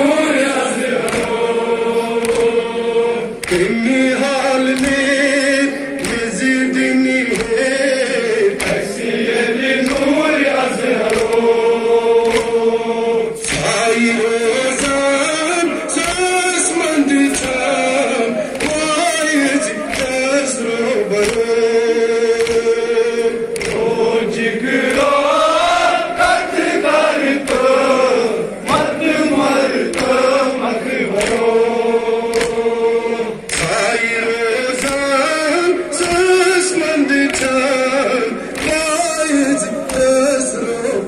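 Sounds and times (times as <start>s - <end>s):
men chanting a lament: 0.0s - 41.0s
chest-beating slaps: 1.0s - 1.4s, 2.2s - 2.6s, 3.4s - 3.7s, 6.0s - 7.7s, 9.8s - 10.2s, 11.0s - 11.5s, 12.2s - 12.6s, 13.4s - 13.8s, 21.2s - 21.6s, 22.4s - 23.9s, 31.1s - 31.6s, 32.3s - 32.7s, 33.4s - 33.9s.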